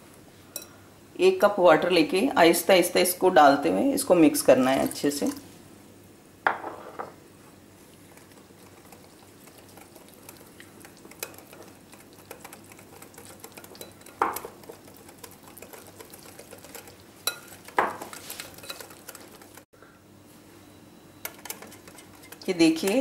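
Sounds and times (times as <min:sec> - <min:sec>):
whisk beating batter in glass bowl: 0:08.0 - 0:19.7, 0:21.3 - 0:23.0
whisk knocking against bowl: 0:08.2 - 0:19.6.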